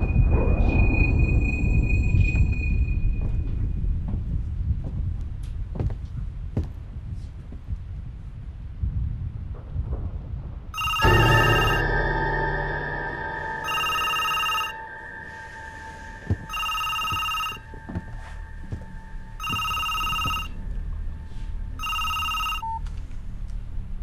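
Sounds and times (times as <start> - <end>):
mobile phone ringtone: 10.8 - 11.9, 13.6 - 14.8, 16.3 - 17.7, 19.4 - 20.6, 21.8 - 22.8.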